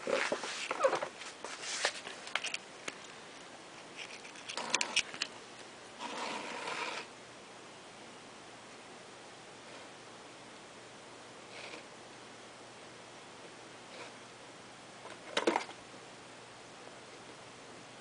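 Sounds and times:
scraping rustle: 0.0 - 2.6.

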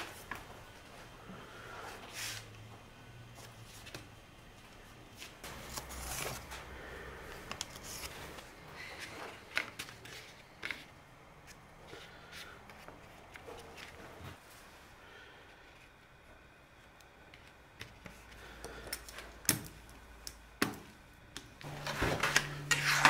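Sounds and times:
rustling of paper tape and veneer: 5.2 - 14.5.

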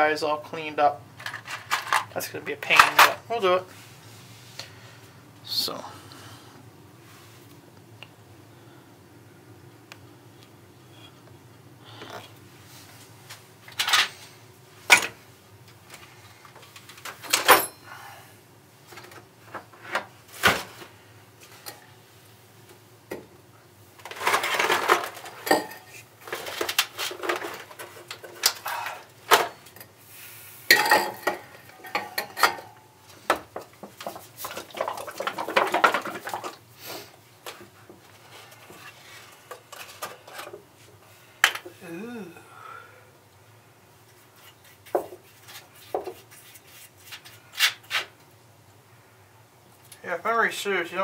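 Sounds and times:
scraping or shuffling: 24.0 - 28.9.

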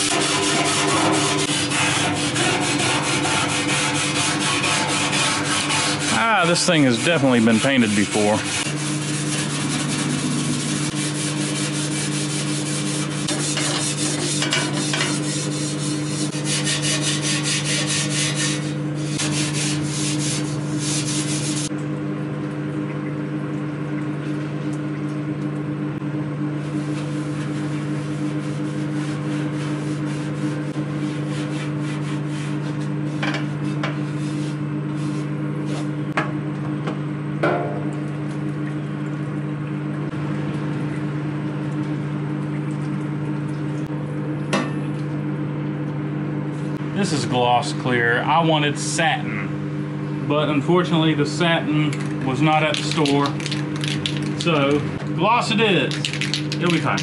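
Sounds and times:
scrubbing paint off sheet metal: 0.0 - 21.7, 26.6 - 36.0, 52.3 - 54.8, 55.4 - 57.0
steady low hum: 0.0 - 57.0.

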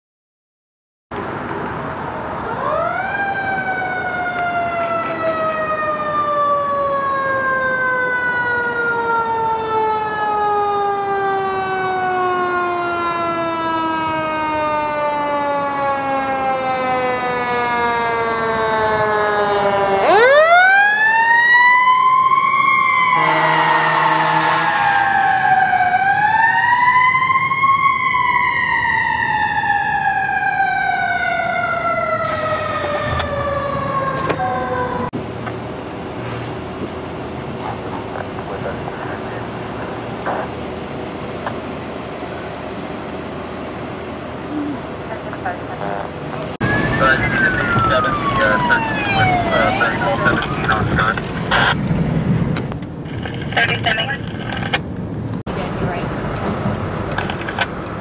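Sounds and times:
fire engine siren: 1.4 - 54.8, 55.5 - 58.0
low horn blare: 23.1 - 25.0.

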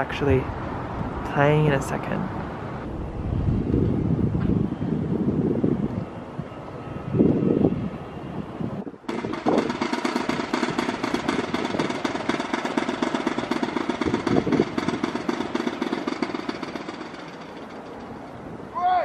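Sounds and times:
rapid mechanical hammering: 9.1 - 18.2.

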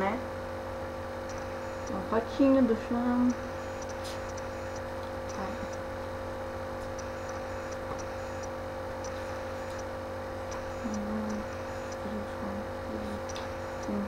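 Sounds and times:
low electrical hum: 0.0 - 14.0
faint high ticks: 1.2 - 2.0, 3.3 - 5.8, 6.8 - 9.9, 10.5 - 12.1, 13.3 - 14.0.

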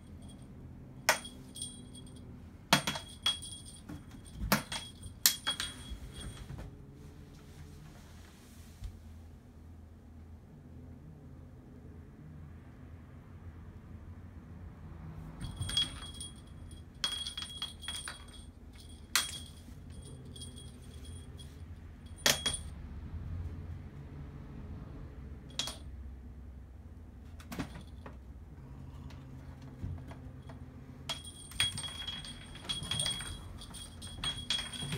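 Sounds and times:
small bell jingling: 0.0 - 6.5, 15.4 - 22.7, 31.1 - 34.9.

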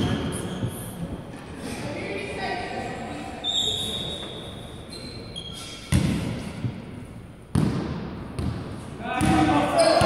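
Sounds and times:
high squeak: 3.4 - 5.9.

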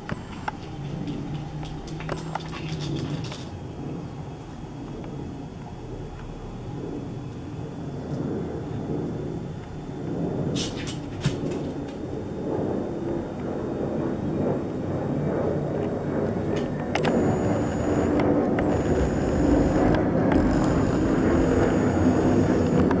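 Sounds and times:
jet airliner rumble overhead: 0.0 - 23.0
sharp clicks: 17.0 - 23.0.

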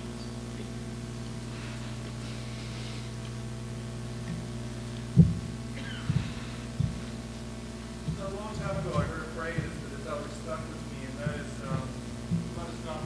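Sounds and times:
electrical mains hum: 0.0 - 13.0
low thumps: 4.1 - 13.0.

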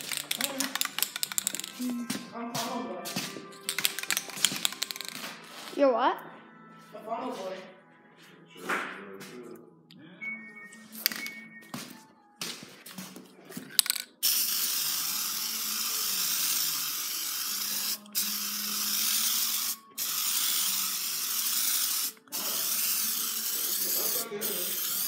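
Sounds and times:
paint spray gun hissing: 14.2 - 25.0.

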